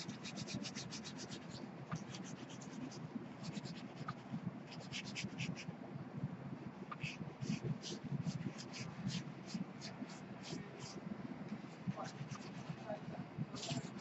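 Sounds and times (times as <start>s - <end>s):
paper towel scrubbing on paper: 0.0s - 5.6s, 6.9s - 11.0s, 11.8s - 14.0s.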